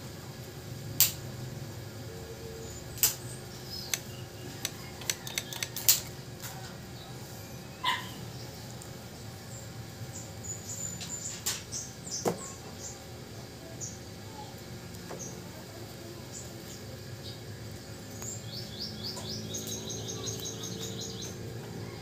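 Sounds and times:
metal tools clicking and tapping: 0:03.8 - 0:06.1.

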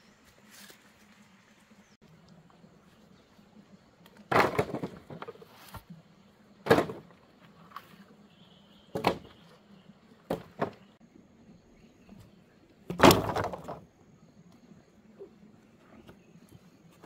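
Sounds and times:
wooden branches rattling: 0:04.3 - 0:05.5, 0:12.9 - 0:13.9.

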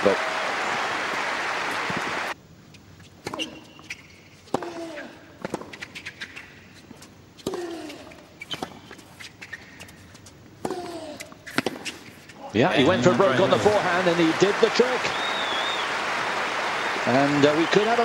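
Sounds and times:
shoe squeaks on court: 0:02.7 - 0:04.6, 0:05.5 - 0:12.5
racket striking tennis ball: 0:10.6 - 0:12.1.

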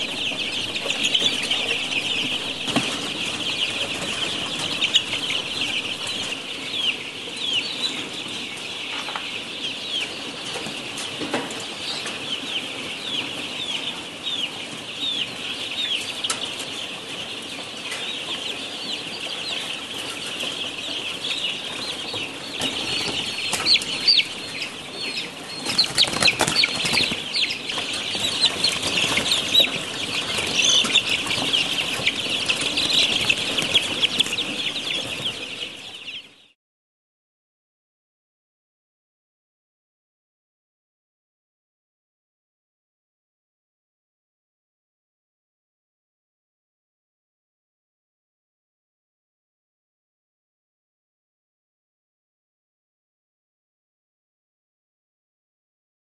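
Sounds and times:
young hens peeping and chirping: 0:00.0 - 0:36.6.

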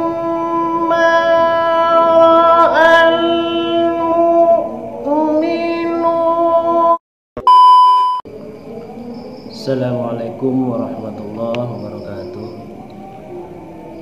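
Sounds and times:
test tone beep: 0:07.4 - 0:08.2
man reciting melodically: 0:09.4 - 0:12.9.

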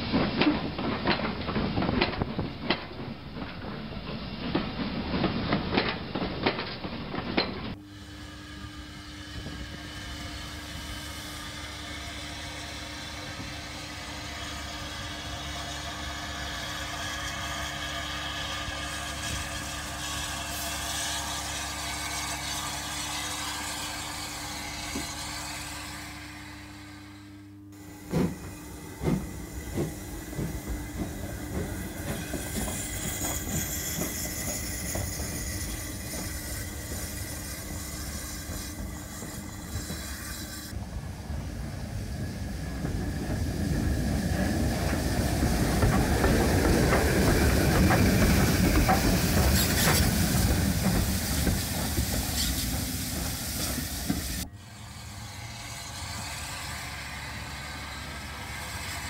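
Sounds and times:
model train wheels rattling on rails: 0:00.0 - 0:07.8, 0:28.0 - 0:59.0
model locomotive motor hum: 0:05.7 - 0:59.0.

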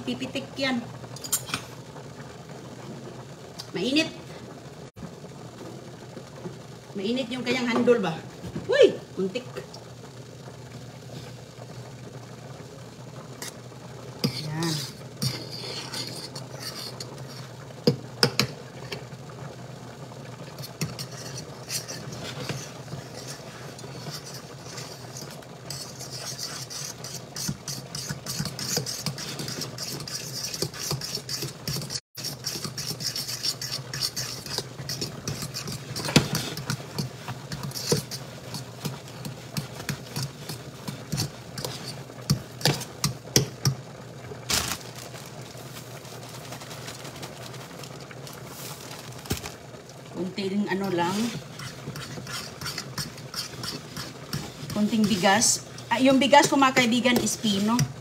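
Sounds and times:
steady low hum: 0:00.0 - 0:58.0
spoon stirring boiling grits: 0:13.3 - 0:58.0.

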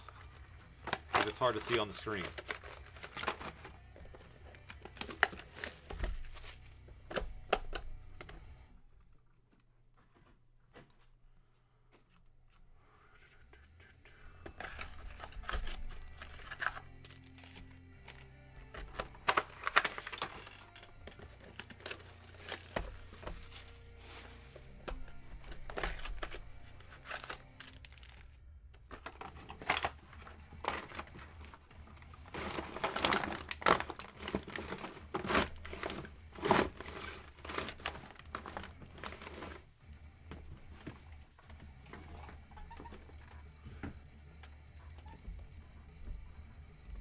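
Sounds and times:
plastic wrappers crinkling: 0:00.0 - 0:07.8, 0:14.5 - 0:39.7.

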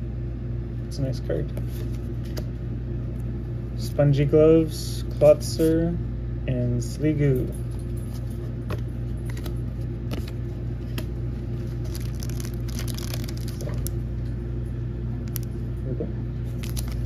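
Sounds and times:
cards clicking and rustling: 0:08.1 - 0:14.0, 0:16.5 - 0:17.0
foil crinkling: 0:11.5 - 0:14.0, 0:15.2 - 0:15.6, 0:16.5 - 0:17.0.

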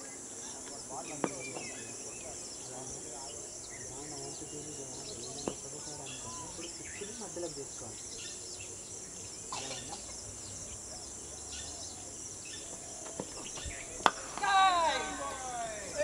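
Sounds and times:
faint bird chirps: 0:00.0 - 0:14.1
distant voices: 0:09.2 - 0:16.0.

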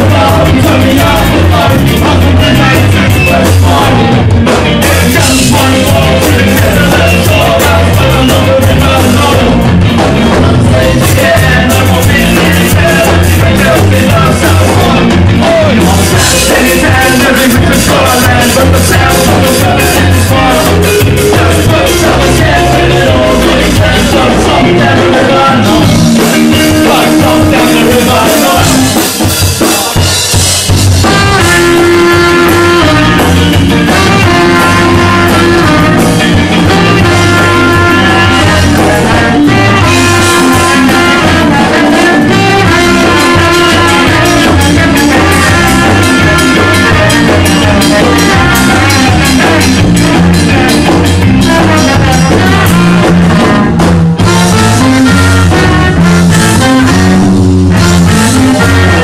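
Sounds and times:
drum kit: 0:00.0 - 0:59.0
live ska band playing: 0:00.0 - 0:59.0
trombone: 0:00.0 - 0:59.0.

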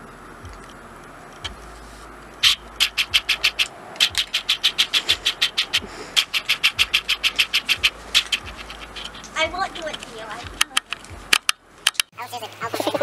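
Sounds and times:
man's breathy wheezing laughter: 0:05.0 - 0:06.2.

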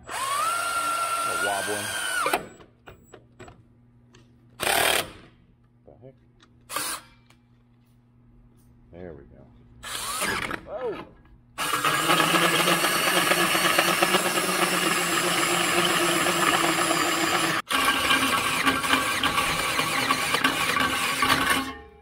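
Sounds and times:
drill hole saw cutting metal: 0:00.0 - 0:02.6, 0:09.8 - 0:10.6, 0:11.6 - 0:22.0.

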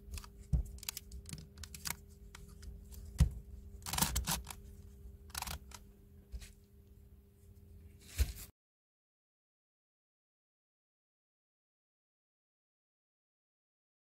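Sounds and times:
faint steady hum: 0:00.0 - 0:08.5
plastic puzzle clicking and clacking: 0:03.8 - 0:04.6, 0:05.3 - 0:05.8.

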